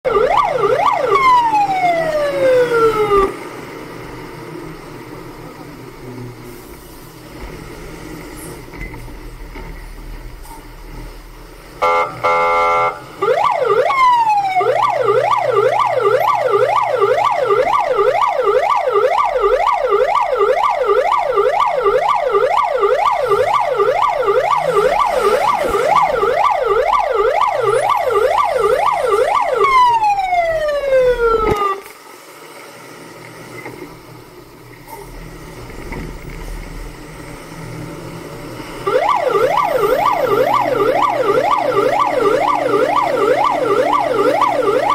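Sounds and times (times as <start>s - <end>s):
fire truck electronic siren: 0.0s - 3.4s, 11.8s - 31.9s, 38.8s - 44.9s.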